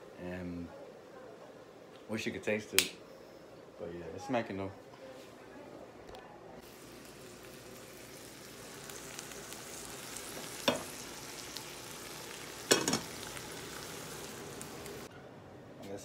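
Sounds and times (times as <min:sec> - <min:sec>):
shrimp sizzling in oil: 0:06.6 - 0:15.1.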